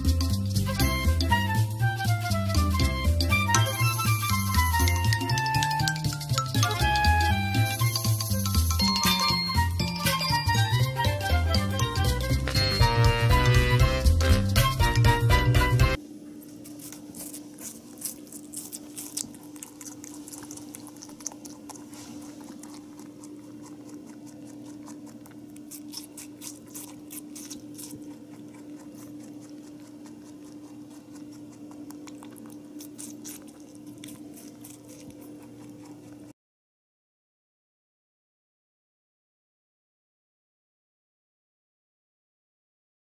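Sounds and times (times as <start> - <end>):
rabbit chewing: 0.0 - 8.9, 9.8 - 36.4
music: 0.0 - 16.0
steady hum: 10.6 - 36.3.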